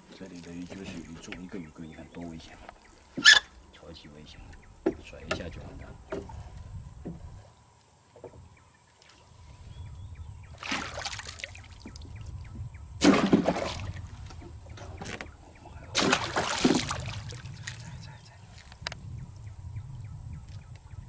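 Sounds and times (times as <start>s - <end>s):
fish thrashing and splashing in water: 10.6s - 12.0s, 13.0s - 14.2s, 15.9s - 17.9s.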